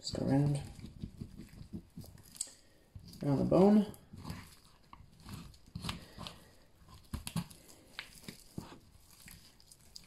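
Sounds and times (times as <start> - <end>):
wet meat handling noises: 0.0 - 10.0
knife scraping bone: 4.1 - 10.0.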